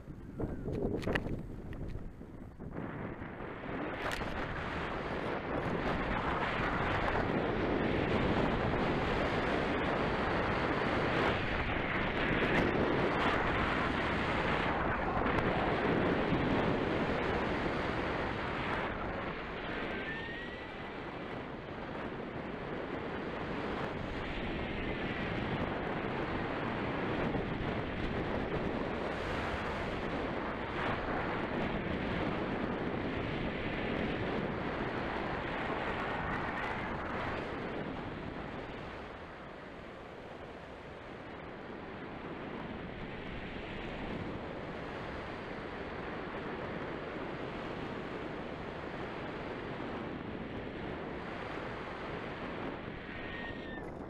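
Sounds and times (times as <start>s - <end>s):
wind rushing over microphone: 0.0s - 54.0s.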